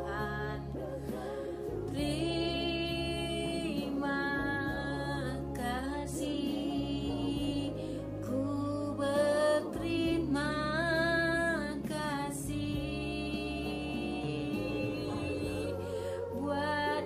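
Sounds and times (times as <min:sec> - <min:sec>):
sustained accompaniment chords: 0:00.0 - 0:17.0
woman singing: 0:00.0 - 0:17.0.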